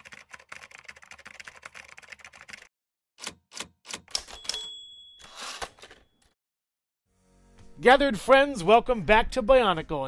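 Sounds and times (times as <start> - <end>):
keys typing clatter: 0.0 - 2.7, 3.5 - 4.7
high ding: 4.4 - 5.4.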